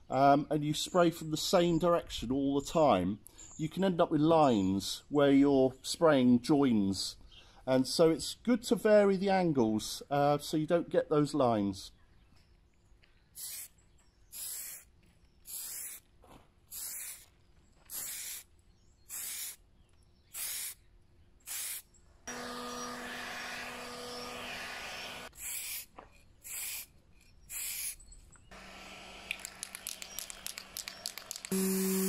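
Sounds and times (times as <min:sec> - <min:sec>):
spray paint can hissing: 0:13.4 - 0:13.7, 0:14.3 - 0:14.9, 0:15.5 - 0:16.0, 0:16.7 - 0:17.3, 0:17.9 - 0:18.5, 0:19.1 - 0:19.6, 0:20.3 - 0:20.8, 0:21.5 - 0:21.8, 0:25.2 - 0:26.9, 0:27.5 - 0:28.0, 0:29.3 - 0:32.0.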